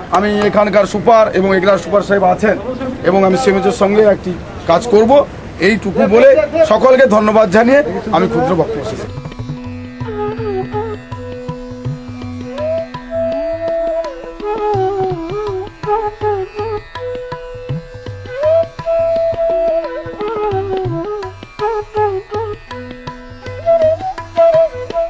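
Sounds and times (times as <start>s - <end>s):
classical instrumental melody: 7.1s - 25.0s
hand drum rhythm: 8.2s - 25.0s.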